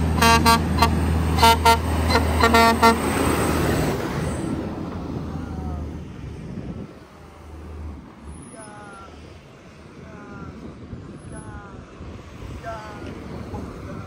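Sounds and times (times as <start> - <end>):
truck engine droning: 0.0 - 14.0
vehicle horn short toots: 0.2 - 3.0.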